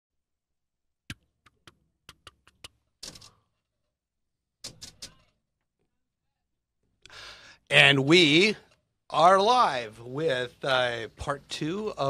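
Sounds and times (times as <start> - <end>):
sharp clicks and knocks: 1.1 - 3.5, 4.6 - 5.7.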